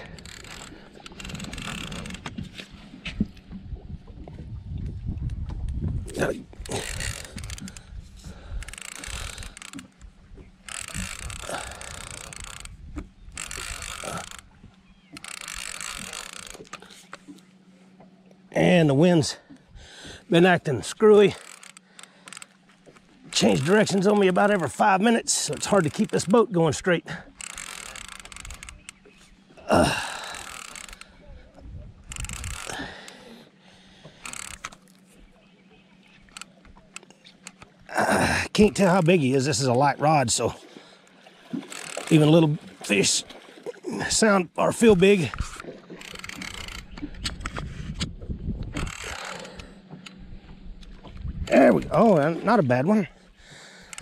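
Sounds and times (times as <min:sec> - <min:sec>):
fishing reel whirring and clicking: 0:00.0 - 0:02.6, 0:06.1 - 0:17.5, 0:20.4 - 0:31.2, 0:32.0 - 0:33.4, 0:34.0 - 0:35.1, 0:36.0 - 0:37.9, 0:41.0 - 0:43.2, 0:44.8 - 0:51.6, 0:53.6 - 0:54.0
steady low hum: 0:00.0 - 0:42.9, 0:43.9 - 0:52.4.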